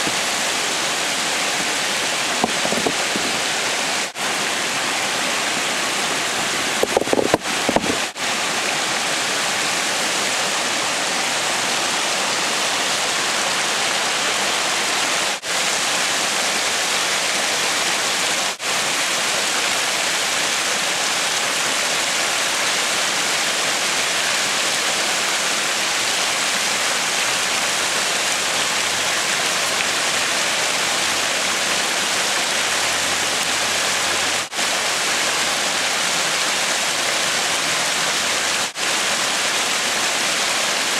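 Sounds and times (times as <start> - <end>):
creek water rushing: 0.0 - 40.9
knocks: 2.4 - 3.4.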